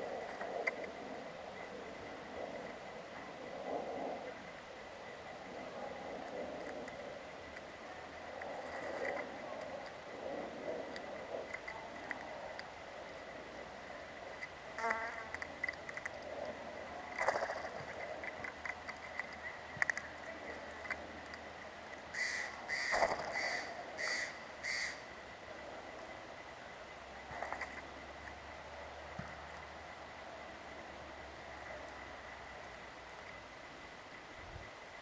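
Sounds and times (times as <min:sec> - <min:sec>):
faint high-pitched hum: 0:00.0 - 0:35.0
birds pecking on wooden log: 0:04.5 - 0:24.9, 0:27.3 - 0:28.4
jay harsh calls: 0:22.1 - 0:25.0.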